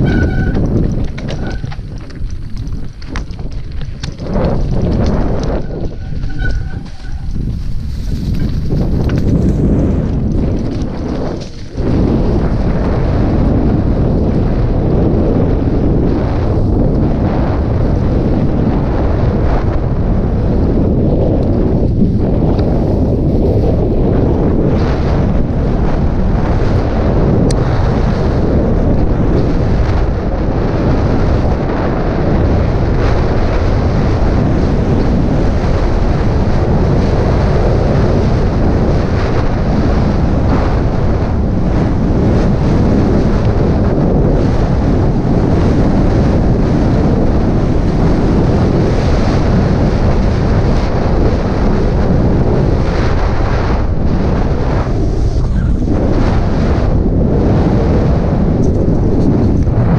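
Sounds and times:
bike clicks and rattles: 0:00.0 - 0:14.5
wind rushing over microphone: 0:00.0 - 0:59.9.

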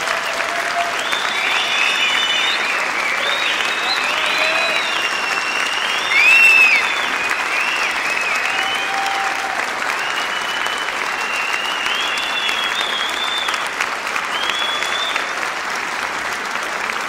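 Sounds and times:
audience applauding: 0:00.0 - 0:17.0
high whistles: 0:01.0 - 0:09.2, 0:09.9 - 0:13.7, 0:14.3 - 0:15.4.

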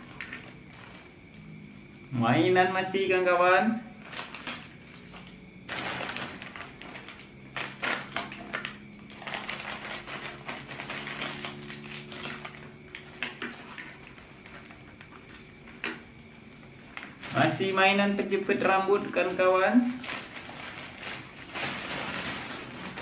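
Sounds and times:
plastic packet crinkling: 0:04.0 - 0:16.0, 0:16.9 - 0:17.8, 0:18.4 - 0:23.0.

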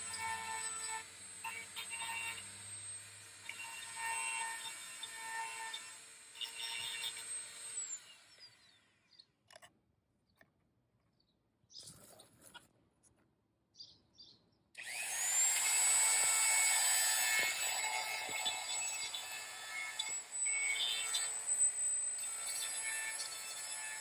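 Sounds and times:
rotary tool grinding whine: 0:00.0 - 0:09.1, 0:14.8 - 0:24.0
faint handling sounds: 0:09.4 - 0:13.4.

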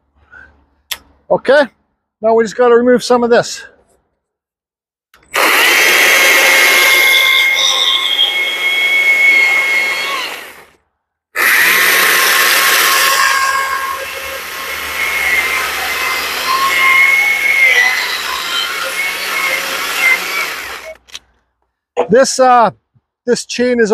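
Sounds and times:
chainsaw rasping through wood: 0:05.2 - 0:10.8, 0:11.4 - 0:21.0
electric chainsaw whine: 0:05.2 - 0:10.8, 0:11.4 - 0:21.0.

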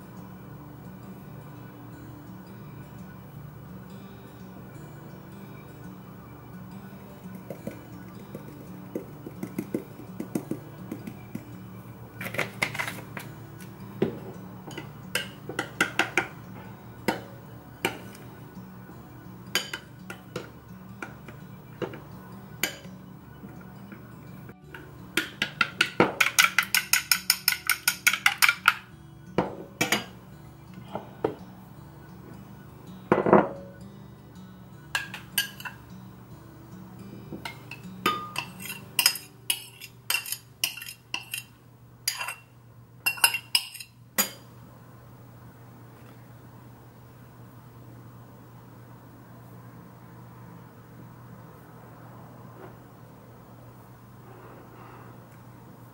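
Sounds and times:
faint background music: 0:00.0 - 0:55.9
spoon clinking on bowl: 0:25.2 - 0:28.8, 0:37.4 - 0:41.5, 0:42.1 - 0:44.4.

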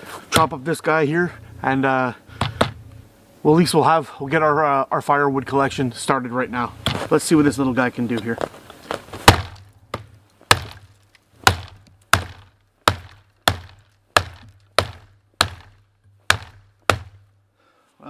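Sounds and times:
hatchet chopping wood: 0:02.4 - 0:02.8, 0:09.2 - 0:17.3.

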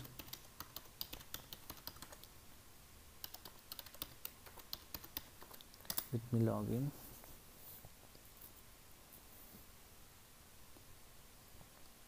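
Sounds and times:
keyboard typing: 0:00.0 - 0:02.3, 0:03.2 - 0:06.1.

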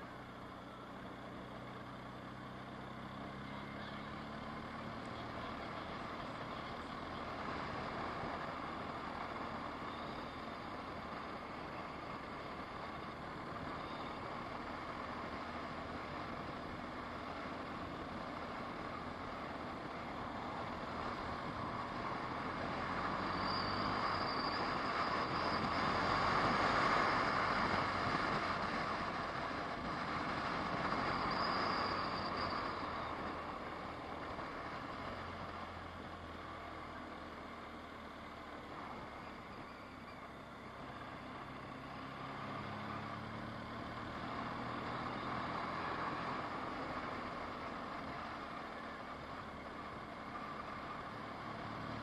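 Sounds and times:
car driving road noise: 0:00.0 - 0:52.0.

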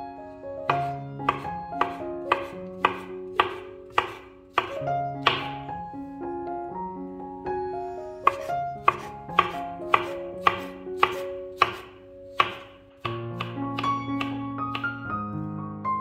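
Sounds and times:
background music with held notes: 0:00.0 - 0:16.0
knife slicing on cutting board: 0:00.7 - 0:05.5, 0:08.3 - 0:13.5.

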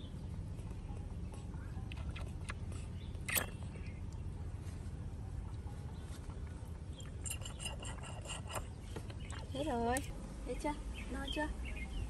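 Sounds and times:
steady low rumble: 0:08.6 - 0:12.0.

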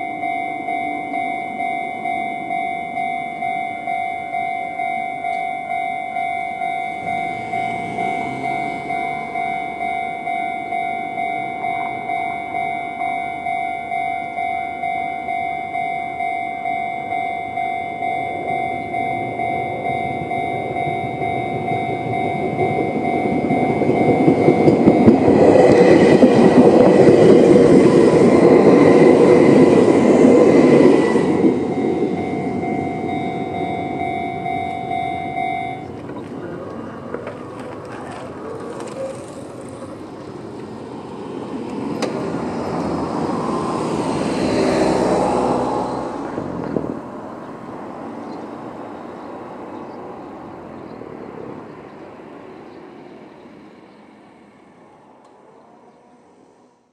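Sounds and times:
level crossing alarm ringing: 0:00.0 - 0:36.4
electric train passing: 0:00.0 - 0:56.9
road vehicle passing: 0:00.0 - 0:56.9.

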